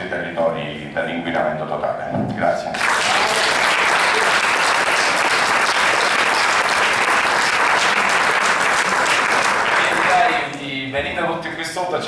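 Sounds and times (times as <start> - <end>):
audience applause: 2.8 - 10.5.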